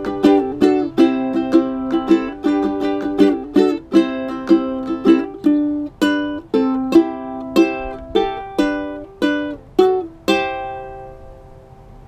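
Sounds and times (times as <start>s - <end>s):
ukulele strumming chords: 0.0s - 11.7s.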